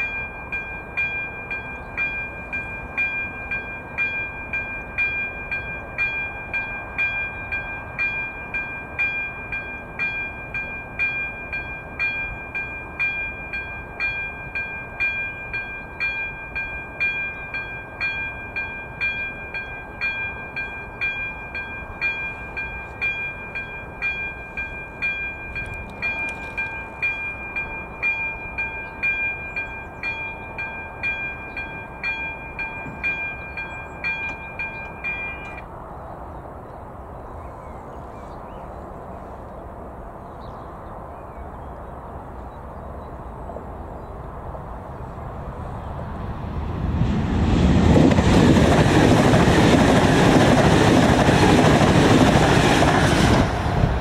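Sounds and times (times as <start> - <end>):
level crossing warning bell: 0.0 - 35.7
electric train rushing past: 0.0 - 37.4, 41.9 - 54.0.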